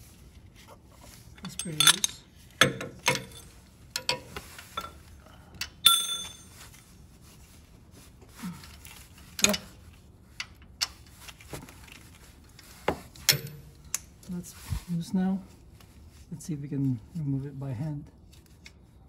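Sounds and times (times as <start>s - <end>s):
ringing metal clink: 5.8s - 6.5s.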